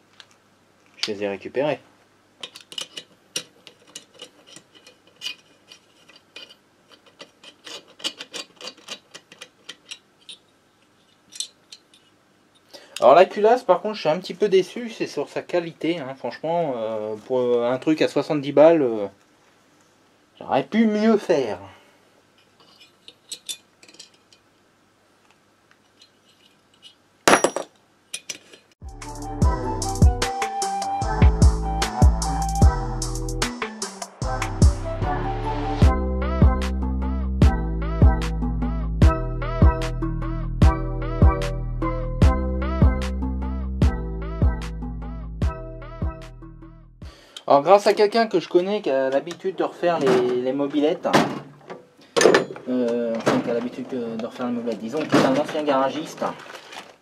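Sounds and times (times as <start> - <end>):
metal clicks of nuts and washers: 2.4 - 13.1, 22.4 - 24.5.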